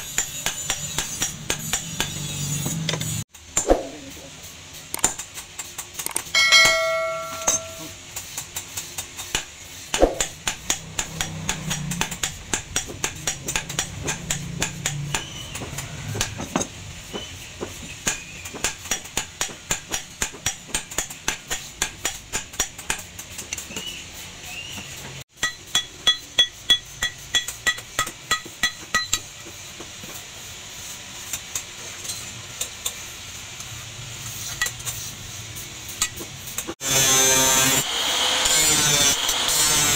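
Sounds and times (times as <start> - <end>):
hammer striking hot steel on anvil: 0.0 - 3.9, 4.9 - 17.3, 18.0 - 23.9, 25.3 - 29.5
bell-like chime: 6.4 - 8.0.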